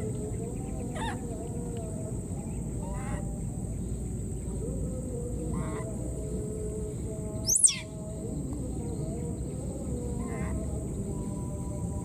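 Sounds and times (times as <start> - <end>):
insects droning: 0.0 - 12.0
faint chirps: 6.8 - 11.8.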